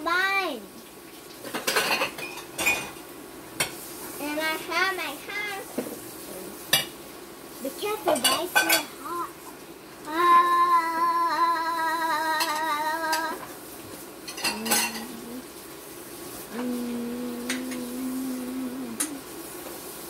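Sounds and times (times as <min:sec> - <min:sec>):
dishes and cutlery clinking: 0:01.5 - 0:03.0, 0:08.1 - 0:08.9, 0:14.3 - 0:15.2
person humming long notes: 0:10.1 - 0:13.4, 0:14.5 - 0:15.5, 0:16.5 - 0:19.4.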